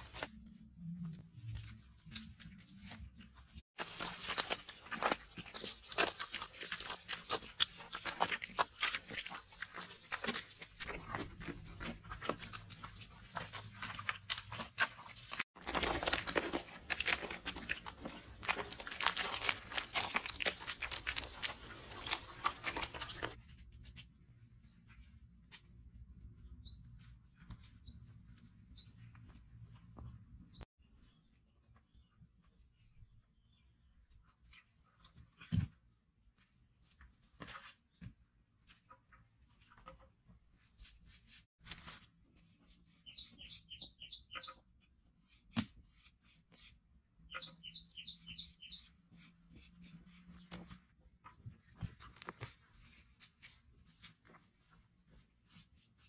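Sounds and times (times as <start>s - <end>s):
hands smearing wet mud: 2.2s - 24.0s
bird chirps: 26.5s - 29.4s, 42.9s - 44.6s, 47.2s - 49.3s.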